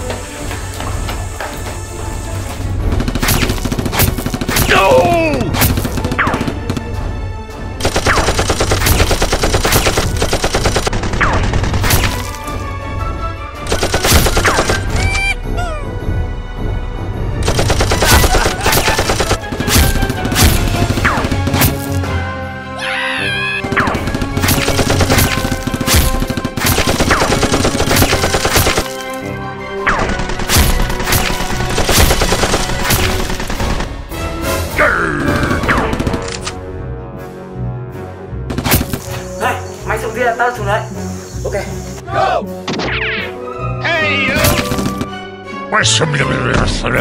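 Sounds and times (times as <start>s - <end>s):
automatic gunfire sound effects: 7.8s - 12.3s, 17.4s - 22.0s, 23.7s - 29.1s, 29.9s - 33.9s, 44.3s - 45.1s.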